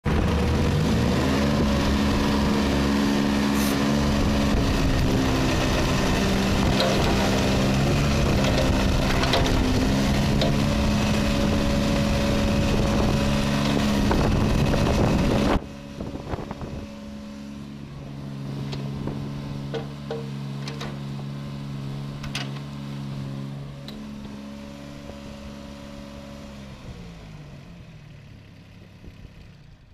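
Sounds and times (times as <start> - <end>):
mini excavator engine: 0.0 - 29.9.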